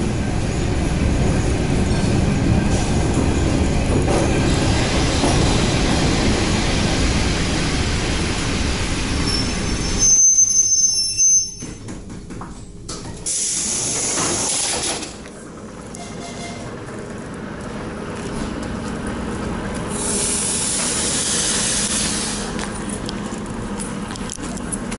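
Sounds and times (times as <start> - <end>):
train running gear rumble: 0.0 - 24.9
brakes and wheels squealing: 9.0 - 11.8, 18.3 - 24.9
compressed-air hiss: 19.9 - 22.5.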